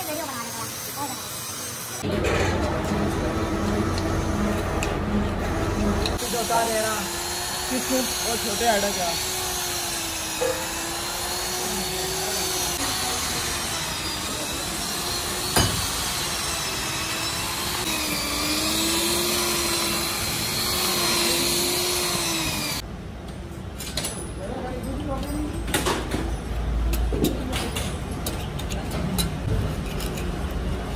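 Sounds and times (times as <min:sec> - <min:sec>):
electric drill whining under load: 0:05.6 - 0:22.8.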